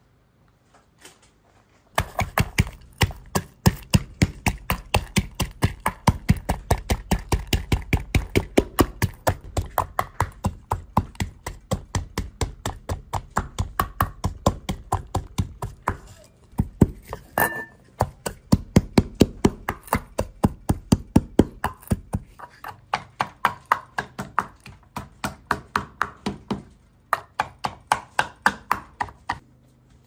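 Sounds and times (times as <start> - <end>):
knife chopping on cutting board: 2.0 - 17.3, 18.0 - 26.6, 27.2 - 29.4.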